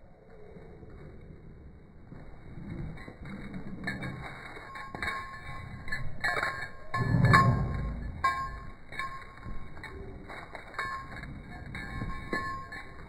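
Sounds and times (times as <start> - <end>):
low rumble: 0.0 - 13.0
dog tags jingling: 3.7 - 13.0.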